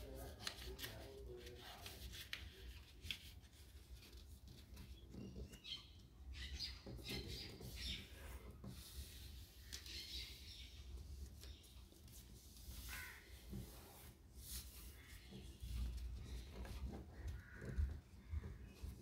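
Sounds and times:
paper rustling and scratching: 0.0 - 5.6.

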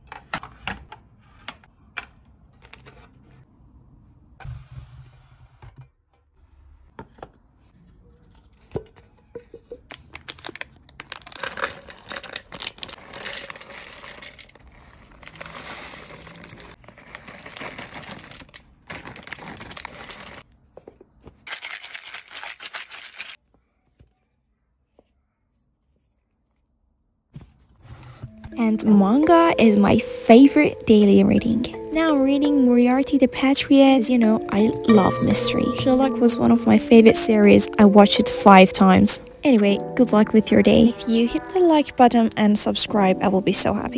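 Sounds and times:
foil bag crinkling: 9.9 - 20.4, 21.5 - 23.4
nuts pouring into a canister: 11.0 - 20.4.

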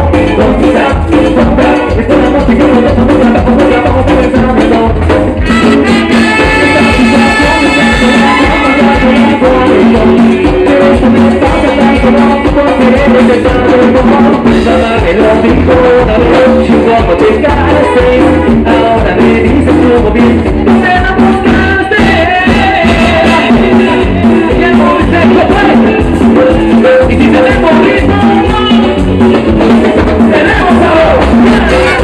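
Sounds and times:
drums: 0.0 - 32.0
keyboard: 0.0 - 32.0
person singing: 0.0 - 32.0
brass: 3.6 - 10.0, 30.3 - 32.0.

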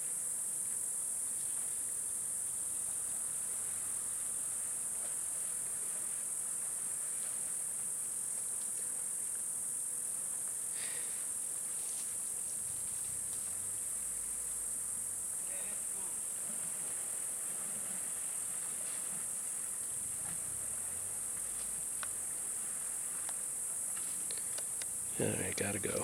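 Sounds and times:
shrill insect chorus: 0.0 - 26.0.

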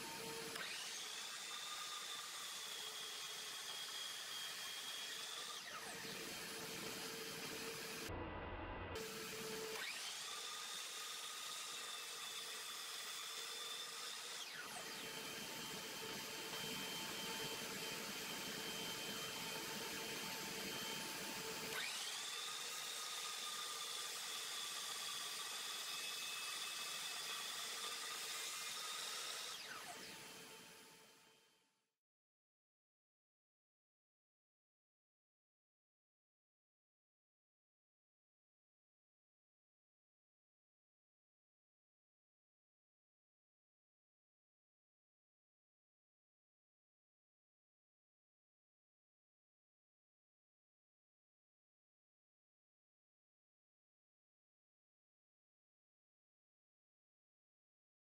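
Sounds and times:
saw blade cutting log: 0.0 - 8.1, 9.0 - 31.0
miter saw motor whining: 0.0 - 31.4.

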